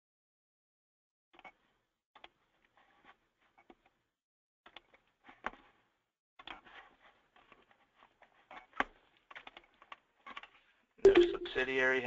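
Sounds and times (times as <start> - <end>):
keyboard clicks: 11.1 - 11.6.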